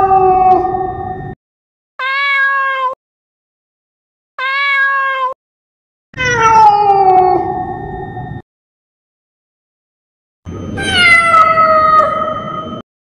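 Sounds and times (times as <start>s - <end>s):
cat meowing: 2.0s - 3.0s, 4.4s - 5.4s, 6.2s - 7.6s, 10.8s - 12.5s.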